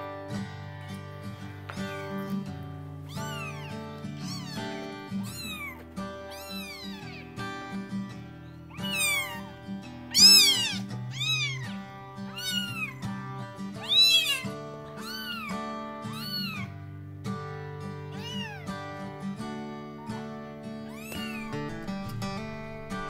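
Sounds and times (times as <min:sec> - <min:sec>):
kitten meowing high-pitched: 0:03.1 - 0:07.4, 0:08.7 - 0:13.1, 0:13.8 - 0:16.7, 0:18.1 - 0:18.8, 0:20.8 - 0:23.0.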